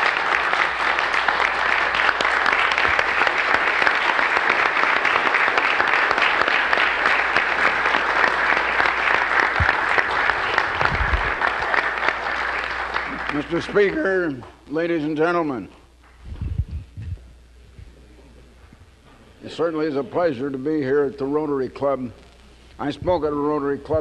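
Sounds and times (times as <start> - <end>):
audience applauding: 0.0 - 14.6.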